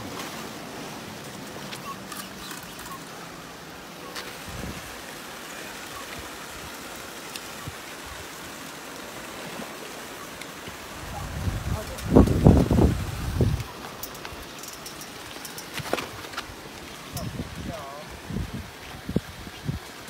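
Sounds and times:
rushing water: 0.0s - 20.0s.

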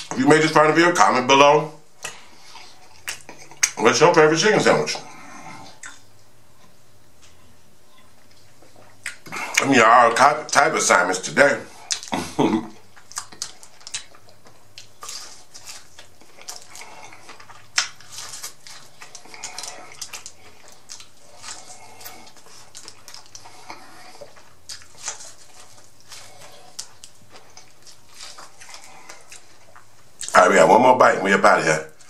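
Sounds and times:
chewing with lip smacks: 2.0s - 3.8s, 5.1s - 6.1s, 7.3s - 9.7s, 11.7s - 30.4s.

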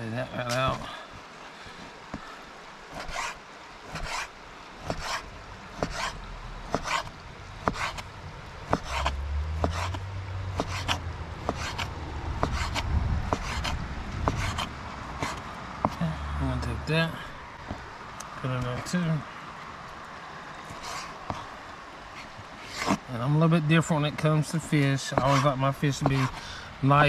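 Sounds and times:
knife slicing fish: 2.9s - 8.1s, 8.7s - 10.0s, 10.6s - 16.0s, 25.1s - 26.4s
knife striking cutting board: 5.8s - 8.0s.

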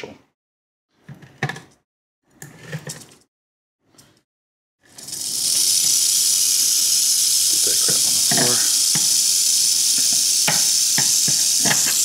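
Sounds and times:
rattlesnake rattling: 4.9s - 12.0s.

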